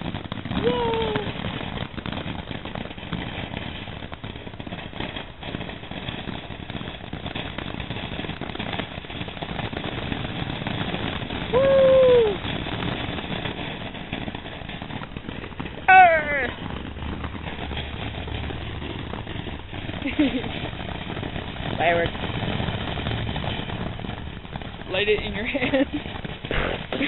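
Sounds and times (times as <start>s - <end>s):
firework spraying sparks: 0.0s - 27.0s
child calling out: 0.6s - 1.3s, 15.9s - 16.6s.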